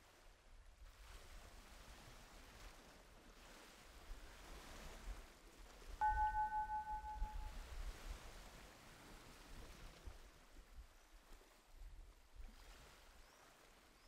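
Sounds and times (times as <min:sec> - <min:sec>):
steady tone: 0:06.0 - 0:07.5.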